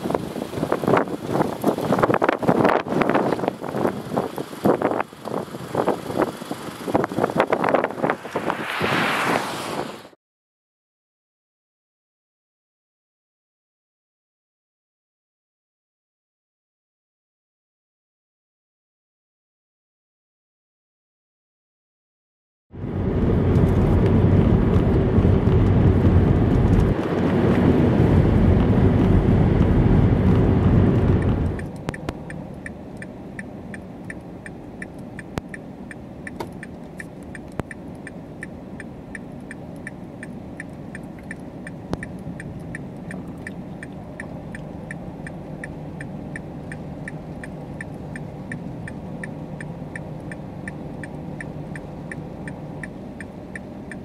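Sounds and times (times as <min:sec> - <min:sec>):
loud rumbling noise: 0:00.0 - 0:10.2, 0:22.7 - 0:33.8
fast evenly spaced ticking: 0:31.6 - 0:54.0.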